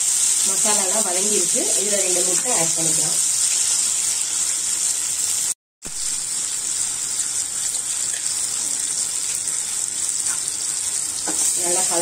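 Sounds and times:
eggs sizzling in oil: 0.0s - 12.0s.

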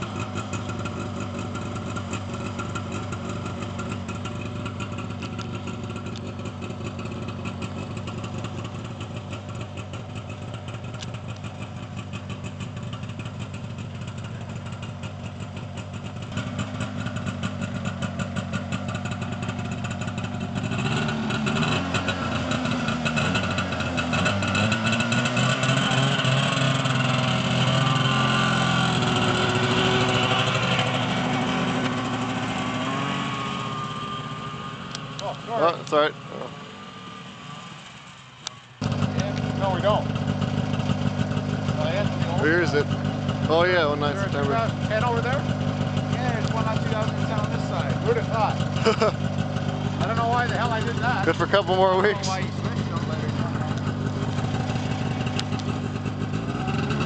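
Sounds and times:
snowmobile engine idling and revving: 0.0s - 57.0s.

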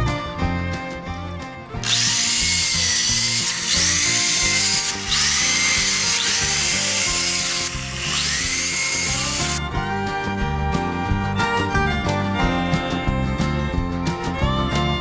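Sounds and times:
background music: 0.0s - 15.0s
electric drill boring into wood: 1.8s - 9.6s.

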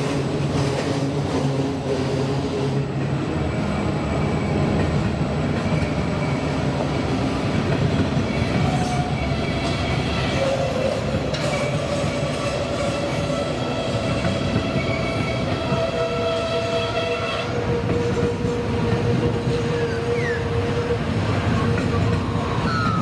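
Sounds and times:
train wheels rumbling on rail: 0.0s - 23.0s
wheels squealing: 8.2s - 23.0s.

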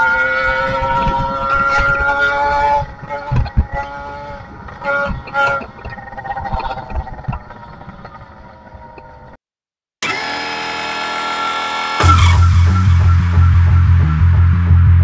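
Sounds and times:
small two-stroke engine running: 10.0s - 12.4s
steady droning tone: 10.7s - 15.0s
low throbbing beat: 12.0s - 15.0s.

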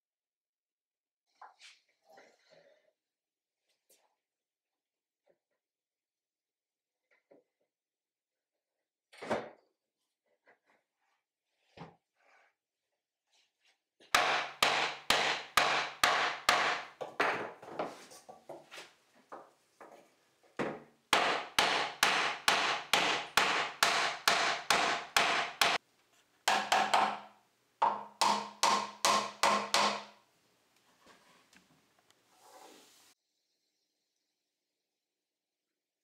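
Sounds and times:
hammer striking wood: 14.1s - 17.5s, 20.6s - 25.8s, 26.5s - 30.2s.

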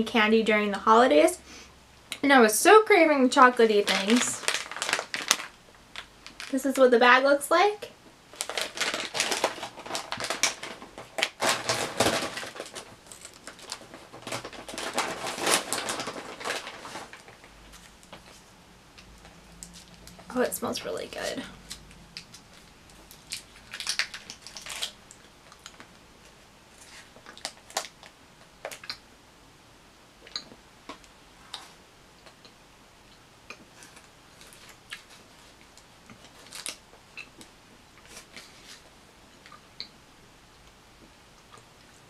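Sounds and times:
candy wrapper crinkling: 3.6s - 6.8s, 8.3s - 18.4s, 19.0s - 29.0s, 33.5s - 38.9s.

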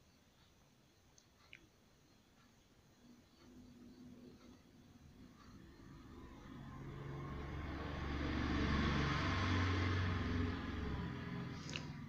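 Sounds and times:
vehicle passing by: 5.2s - 12.0s.

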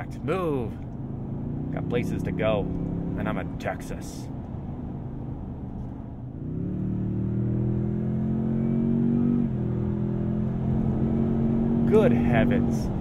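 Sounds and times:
car engine accelerating hard: 0.4s - 4.1s, 6.3s - 13.0s.

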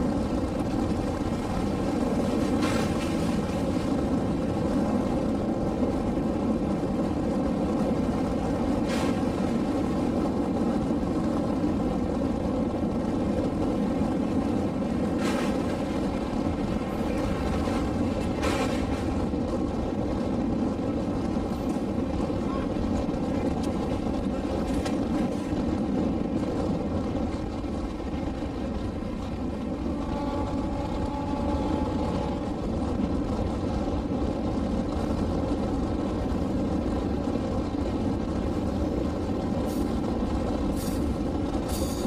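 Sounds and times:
train wheels rumbling: 0.0s - 42.0s.

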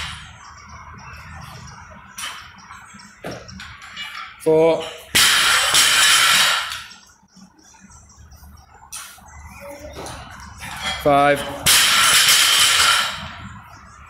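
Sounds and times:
bar and plates rattling: 1.4s - 7.0s, 10.0s - 13.8s.

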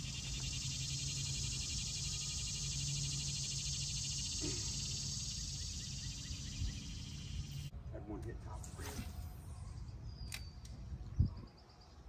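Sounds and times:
insect chorus buzzing: 0.0s - 7.7s.

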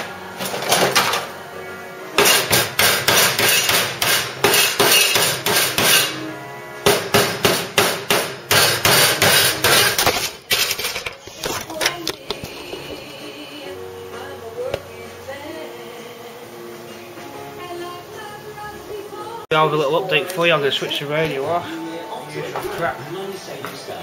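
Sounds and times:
hammer tapping on metal: 2.2s - 6.2s, 6.8s - 10.0s.

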